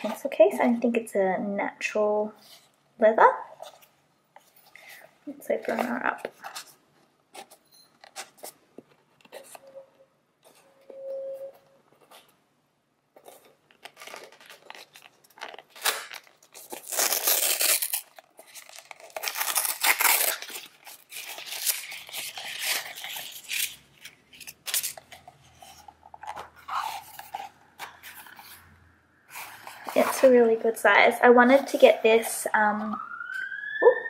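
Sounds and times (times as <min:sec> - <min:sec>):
paper rustling and tearing: 0:13.2 - 0:28.7, 0:29.3 - 0:30.6.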